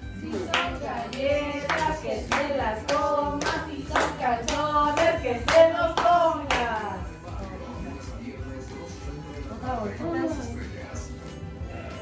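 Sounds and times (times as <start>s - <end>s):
rhythmic hand clapping: 0.1s - 7.4s
people singing together: 0.2s - 7.1s.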